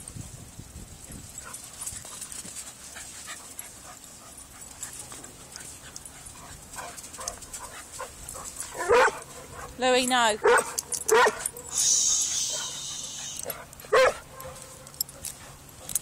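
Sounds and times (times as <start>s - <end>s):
dog panting: 1.4s - 9.8s, 10.4s - 14.0s.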